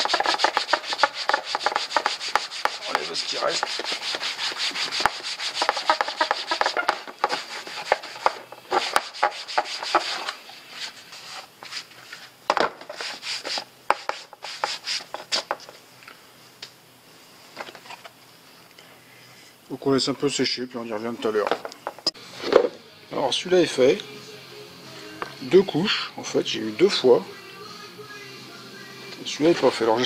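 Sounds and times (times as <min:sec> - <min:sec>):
cloth rag rubbing plastic: 0:00.0 - 0:15.6.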